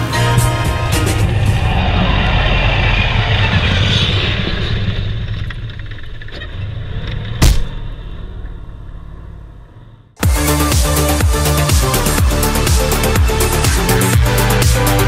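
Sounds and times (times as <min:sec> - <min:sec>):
music: 0:00.0 - 0:02.9, 0:10.2 - 0:15.0
tank engine and tracks running: 0:00.0 - 0:15.0
loud sharp thump: 0:07.4 - 0:08.0.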